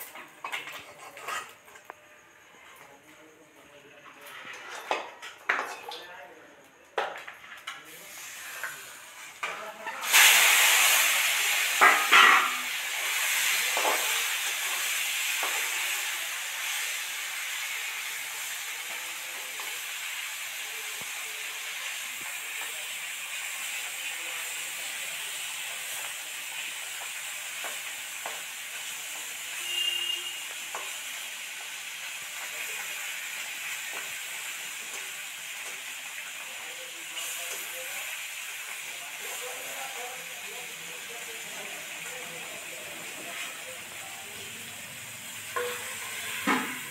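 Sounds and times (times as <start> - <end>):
fish sizzling in hot oil: 7.0 - 46.9.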